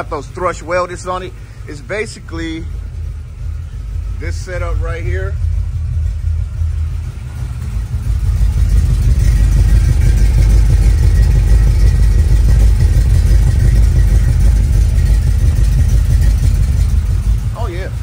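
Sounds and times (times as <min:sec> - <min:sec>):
engine idling with low rumble: 0:00.0 - 0:18.0.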